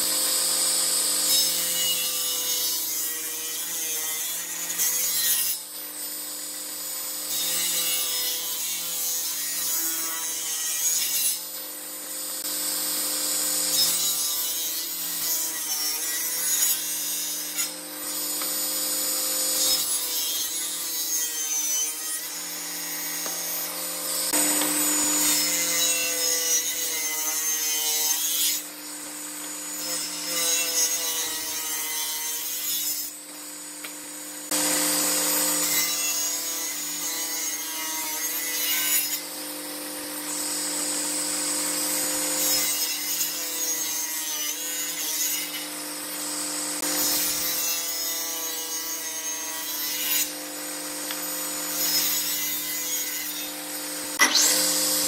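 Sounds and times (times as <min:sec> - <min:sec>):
saw blade cutting wood: 0:00.0 - 0:05.8, 0:12.4 - 0:55.0
table saw motor hum: 0:21.4 - 0:31.8, 0:33.4 - 0:37.1, 0:38.1 - 0:43.4, 0:50.2 - 0:55.0.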